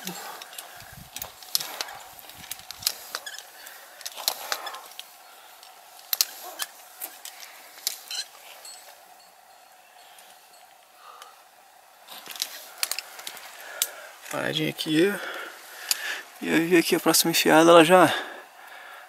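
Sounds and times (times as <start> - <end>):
metal climbing hardware clicking: 0.0 - 8.4.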